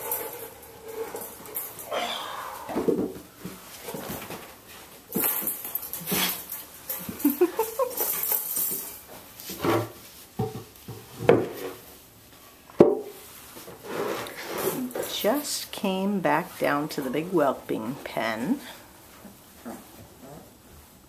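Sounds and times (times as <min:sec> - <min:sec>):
puppies whining and squealing: 0:01.9 - 0:02.8, 0:19.2 - 0:20.6.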